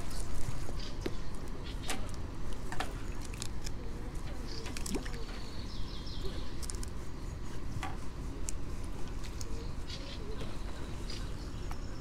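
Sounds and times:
water splashes and drips: 0:04.6 - 0:05.3.

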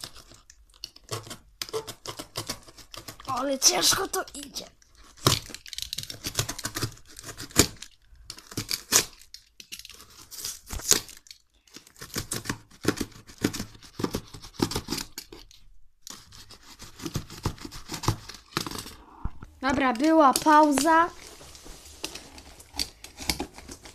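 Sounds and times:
knife cutting cardboard: 0:01.0 - 0:04.2, 0:05.1 - 0:11.1, 0:11.8 - 0:19.0, 0:20.3 - 0:23.9
cardboard cracking: 0:16.8 - 0:19.0, 0:19.9 - 0:23.9.

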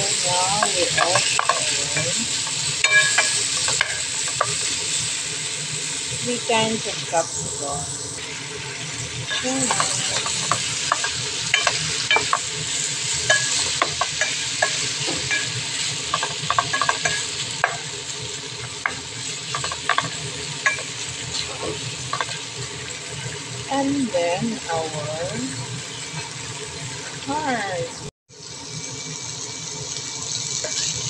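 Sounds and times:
food sizzling in frying pan: 0:00.0 - 0:31.0
wooden spoon knocking pan: 0:00.5 - 0:02.2, 0:09.3 - 0:12.5, 0:16.1 - 0:17.9, 0:18.8 - 0:20.9.

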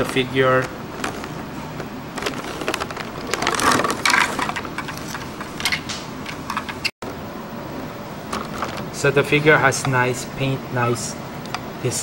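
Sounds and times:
plastic blister tray crackling: 0:00.0 - 0:05.9.

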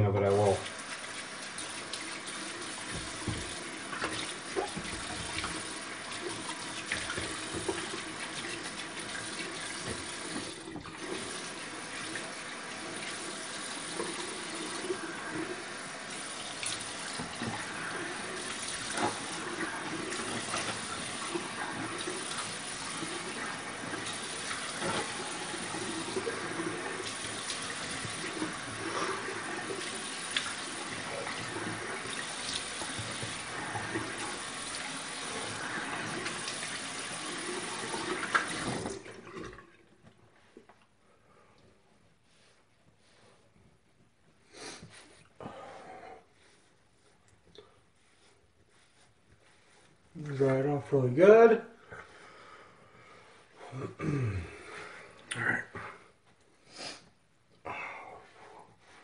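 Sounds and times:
tap running into sink: 0:01.6 - 0:11.4, 0:29.7 - 0:35.4, 0:36.0 - 0:39.2.

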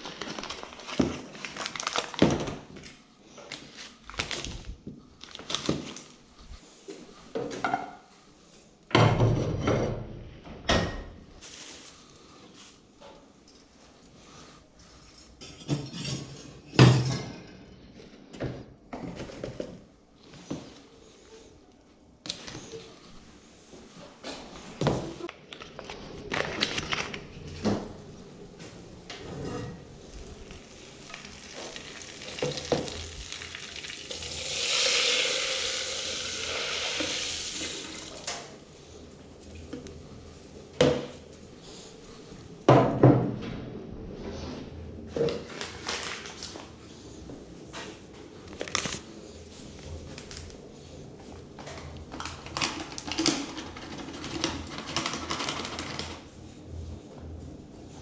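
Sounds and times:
packaging rustling: 0:00.0 - 0:02.7, 0:03.5 - 0:06.2, 0:25.4 - 0:27.6, 0:48.4 - 0:49.1.

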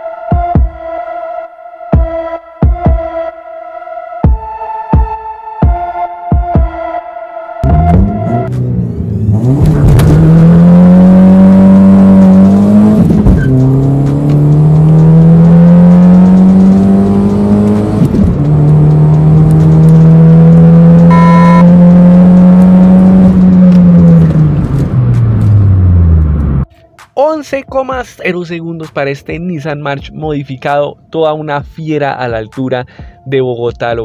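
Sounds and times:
car engine accelerating: 0:07.6 - 0:26.7
short beep: 0:21.0 - 0:21.8.

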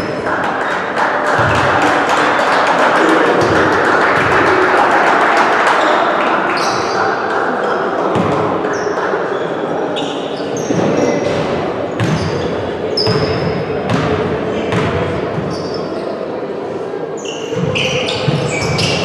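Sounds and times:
murmur of spectators: 0:00.0 - 0:19.0
ball bouncing on court: 0:01.4 - 0:01.9, 0:08.1 - 0:09.1, 0:10.0 - 0:15.8, 0:17.5 - 0:19.0
high-pitched shoe squeaks: 0:17.2 - 0:19.0.

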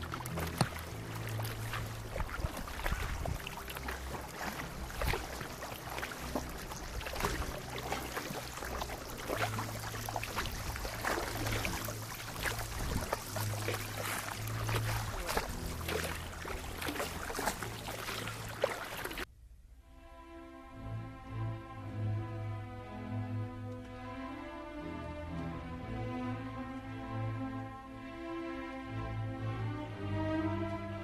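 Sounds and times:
kayak paddles splashing in water: 0:00.0 - 0:19.3
water dripping off paddles: 0:00.0 - 0:19.3
low orchestral strings: 0:00.0 - 0:31.0.

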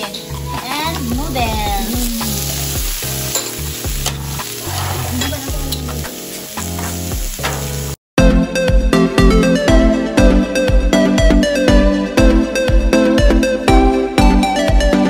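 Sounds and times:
meat sizzling on a griddle: 0:01.0 - 0:08.0.

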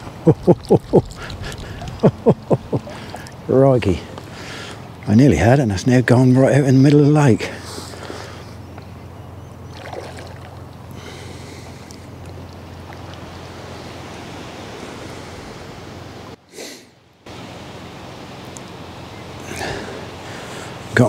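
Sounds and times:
wind on microphone: 0:00.0 - 0:03.2
constant low hum: 0:00.0 - 0:21.0.

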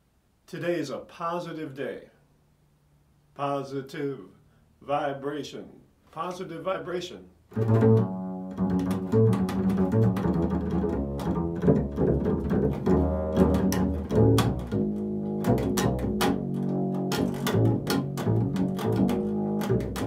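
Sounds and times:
double bass plucked: 0:07.5 - 0:20.0.

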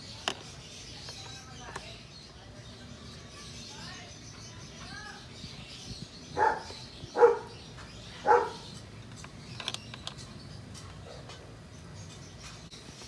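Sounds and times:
dog barking: 0:06.4 - 0:07.5, 0:08.2 - 0:08.6.

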